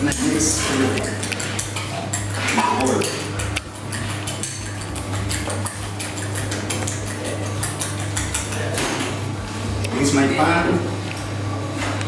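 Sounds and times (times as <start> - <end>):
metal utensils clinking on pots: 0.0 - 9.2
steady low hum: 0.0 - 12.0.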